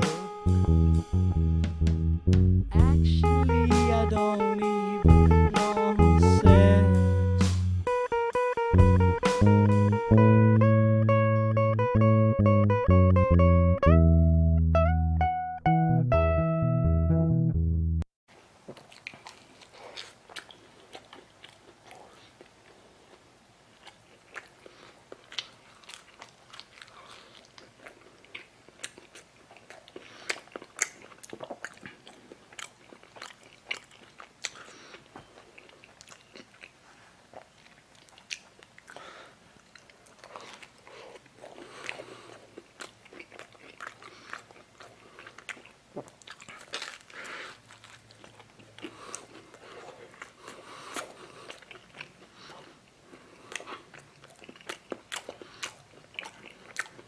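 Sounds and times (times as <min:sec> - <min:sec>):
person chewing crunchy snack: 0:18.6 - 0:57.0.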